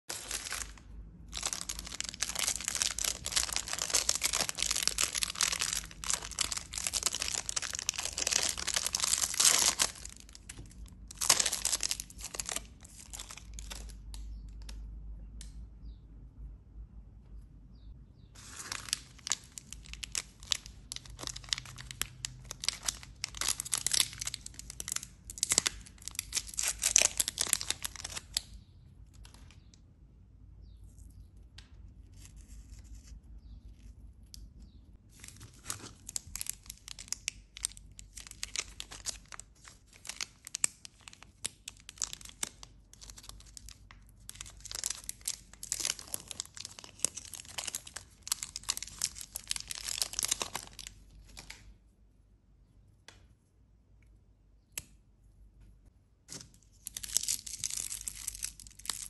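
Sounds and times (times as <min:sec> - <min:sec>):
wrappers crinkling and tearing: 0:00.1 - 0:14.0, 0:18.4 - 0:28.5, 0:35.1 - 0:51.6, 0:56.3 - 0:59.0.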